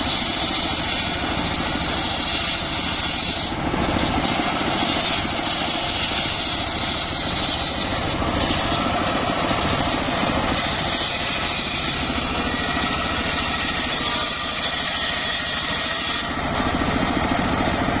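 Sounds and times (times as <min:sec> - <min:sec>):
engine running steadily: 0:00.0 - 0:18.0
saw blade ripping wood: 0:00.0 - 0:18.0.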